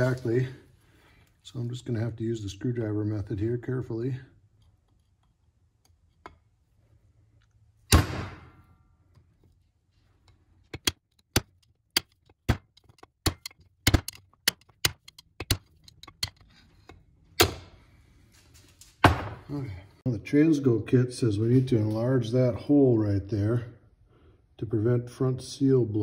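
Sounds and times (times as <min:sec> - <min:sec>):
sharp metallic clicks: 0:10.7 - 0:16.5.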